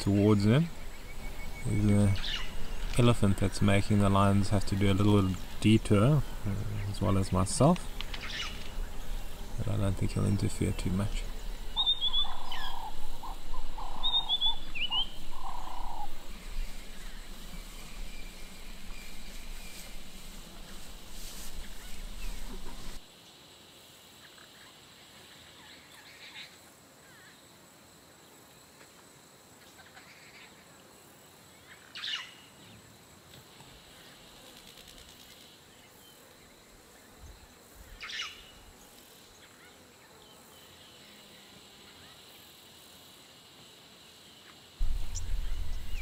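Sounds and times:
faint high insect drone: 0.0s - 46.0s
short bird calls: 11.6s - 19.9s
loud low rumble: 44.8s - 46.0s.

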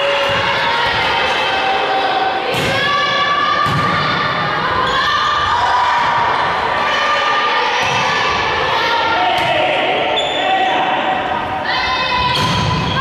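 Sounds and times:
people shouting and cheering: 0.0s - 13.0s
volleyball hits: 2.4s - 4.2s.

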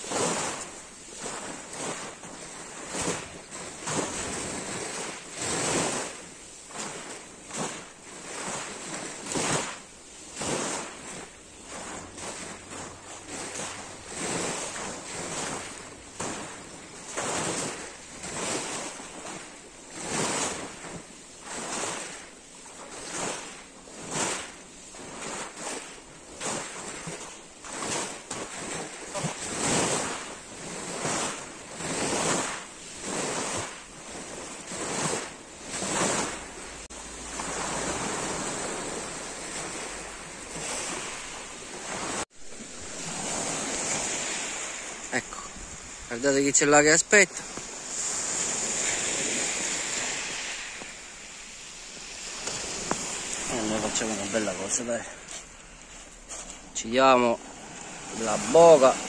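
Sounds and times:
waves washing onto pebble beach: 0.0s - 59.0s.

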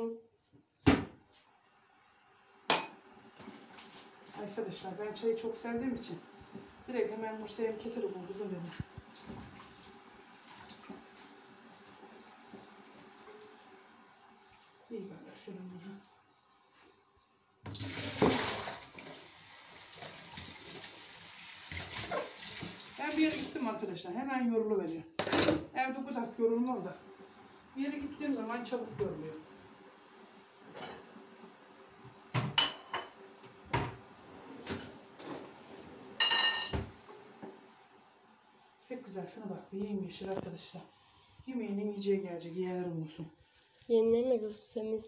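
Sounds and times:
tap water running into sink: 8.8s - 11.3s, 17.7s - 23.6s
faint steady hum: 36.2s - 45.0s.

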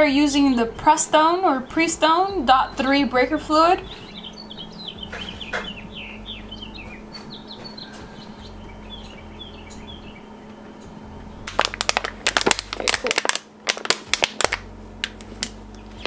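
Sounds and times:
birds chirping: 0.0s - 11.9s, 15.6s - 16.0s
low steady hum: 0.0s - 16.0s
loud sharp crackling clicks: 9.0s - 15.9s.

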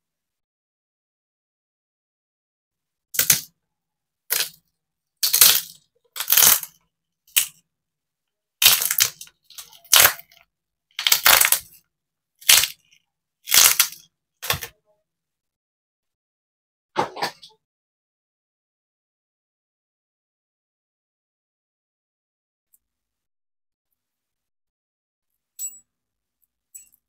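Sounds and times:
glass screen protector crackling: 3.2s - 3.5s, 5.2s - 7.5s, 8.6s - 10.4s, 11.0s - 11.8s, 12.4s - 14.7s.

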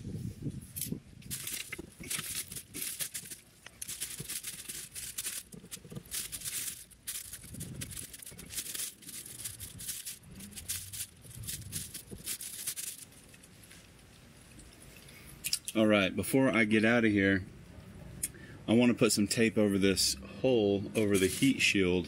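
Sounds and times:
hands rustling and scraping: 0.6s - 15.0s, 21.0s - 21.7s
rubbing on covering: 1.3s - 13.2s.

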